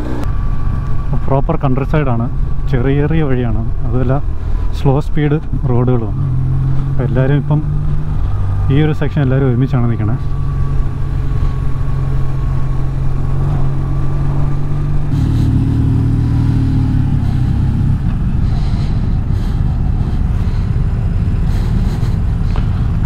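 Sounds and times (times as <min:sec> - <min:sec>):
motorcycle engine running: 0:00.0 - 0:04.7, 0:05.4 - 0:23.0
steady rush of noise: 0:14.6 - 0:23.0.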